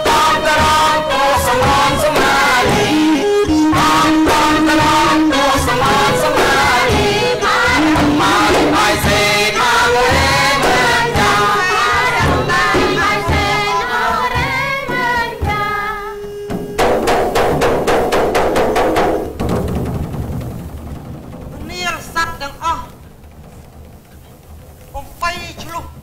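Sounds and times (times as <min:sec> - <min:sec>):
voices singing: 0:00.0 - 0:17.4
drum beats: 0:00.0 - 0:26.0
fast frame drum strokes: 0:00.0 - 0:26.0.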